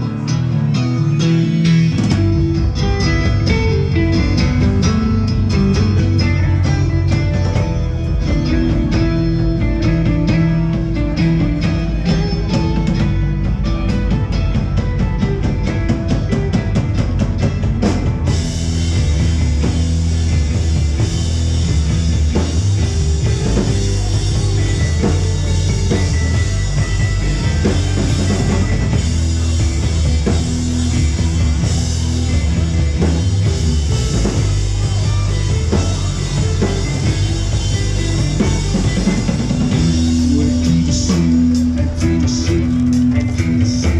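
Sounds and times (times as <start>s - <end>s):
live rock band playing: 0.0s - 43.9s.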